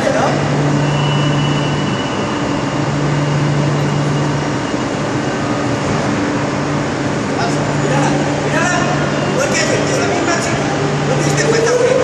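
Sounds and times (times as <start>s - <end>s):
station noise: 0.0s - 12.0s
train humming at platform: 0.0s - 12.0s.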